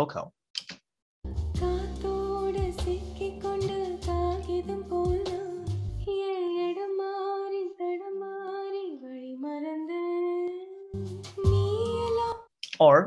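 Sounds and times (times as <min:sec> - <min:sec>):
song with bass and drums: 0:01.3 - 0:06.1.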